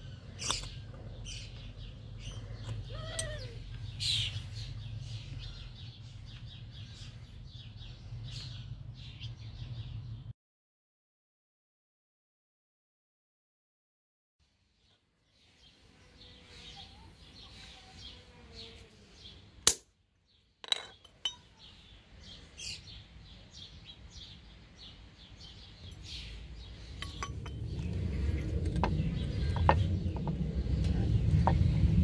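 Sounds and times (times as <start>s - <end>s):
birds chirping: 0.0s - 10.3s, 14.8s - 19.7s, 20.3s - 32.0s
punch striking steel bar: 19.7s - 19.9s
low rumble: 26.2s - 32.0s.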